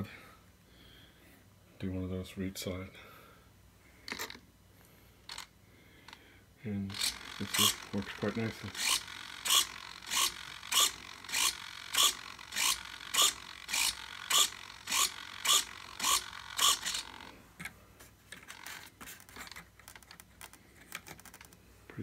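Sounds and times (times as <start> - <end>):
servo mechanical strokes: 6.9 - 17.4
light clicks and handling noise: 17.6 - 22.0.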